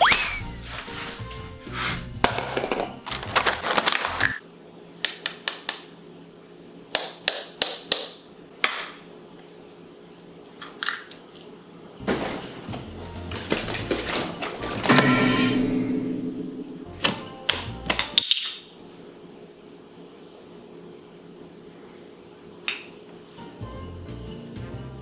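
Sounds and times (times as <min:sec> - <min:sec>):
background music: 0:00.0 - 0:03.6, 0:12.0 - 0:18.2, 0:23.4 - 0:25.0.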